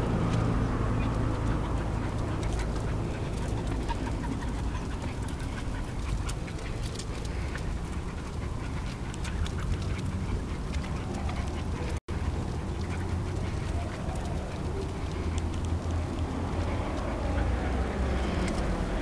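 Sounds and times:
low street rumble: 0.0s - 19.0s
light clicks and ticks: 0.2s - 19.0s.

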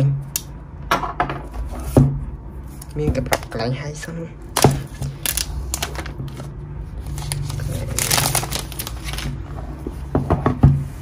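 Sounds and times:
plastic shrink-wrap crinkling: 4.5s - 9.6s.

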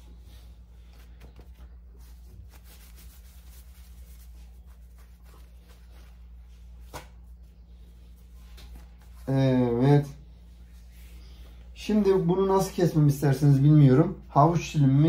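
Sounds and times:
dough sheets rustling: 0.0s - 9.5s
steady low hum: 0.0s - 15.0s.

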